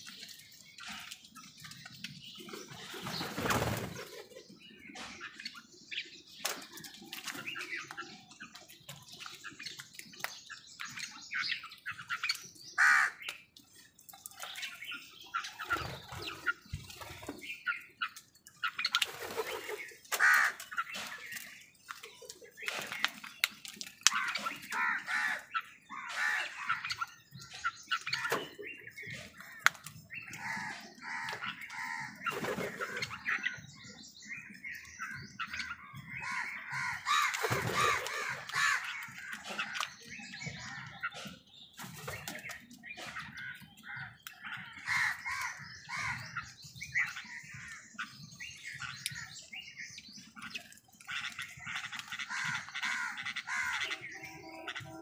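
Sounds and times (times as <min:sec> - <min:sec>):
crows cawing: 0:12.8 - 0:13.2, 0:20.1 - 0:20.7, 0:24.1 - 0:26.8, 0:30.3 - 0:32.2, 0:36.2 - 0:39.9, 0:43.5 - 0:46.3, 0:51.4 - 0:55.0.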